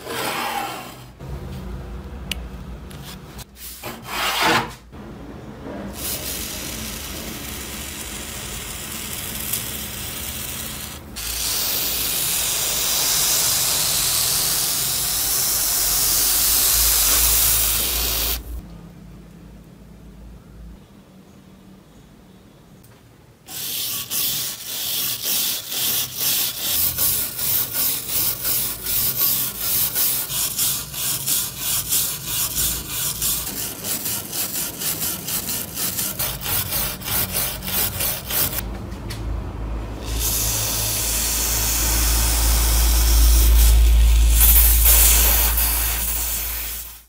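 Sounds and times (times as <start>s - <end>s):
water spray hiss: 11.2s - 18.4s, 40.1s - 47.0s
wire brush scrubbing metal: 23.5s - 38.6s.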